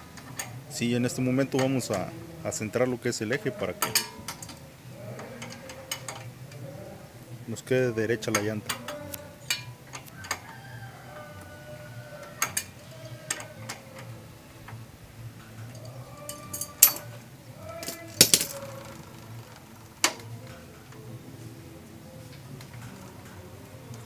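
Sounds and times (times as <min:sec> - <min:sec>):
metal tool clinking: 0:03.8 - 0:04.6, 0:15.6 - 0:17.2, 0:17.8 - 0:18.7.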